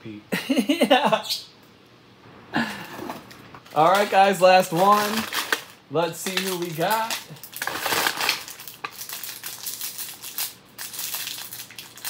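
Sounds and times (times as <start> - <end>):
plastic wrapping crinkling: 3.2 - 12.0.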